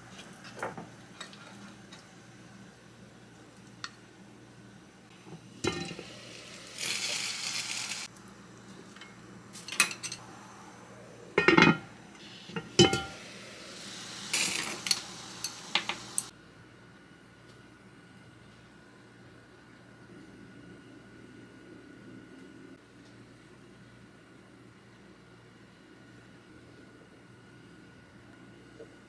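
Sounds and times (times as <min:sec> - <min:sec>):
short hiss: 0:06.0 - 0:08.1, 0:12.2 - 0:16.3
cookware clinking and knocking: 0:11.4 - 0:11.9, 0:12.6 - 0:13.1.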